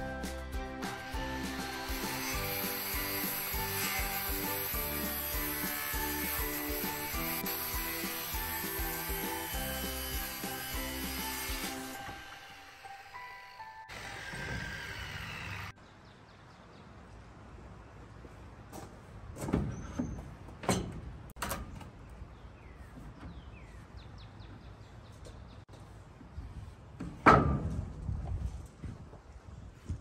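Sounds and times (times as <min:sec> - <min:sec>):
loud wooden thump: 0:27.2 - 0:27.9.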